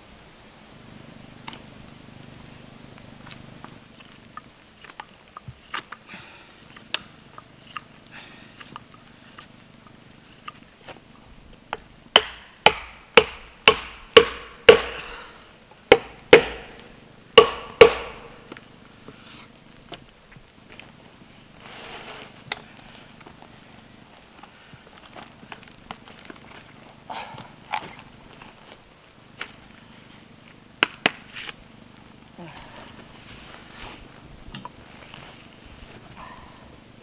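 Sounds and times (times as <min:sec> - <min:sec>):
baton knocking knife through wood: 0:12.2 - 0:15.0, 0:15.9 - 0:18.5.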